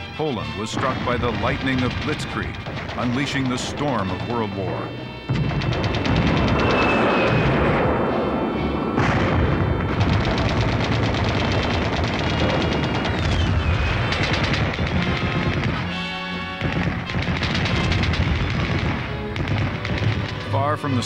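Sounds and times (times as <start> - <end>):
rapid gunfire: 0.6 - 7.9, 9.0 - 21.0
explosions: 0.6 - 21.0
low rumble: 5.1 - 15.9
falling whistle: 6.5 - 7.7.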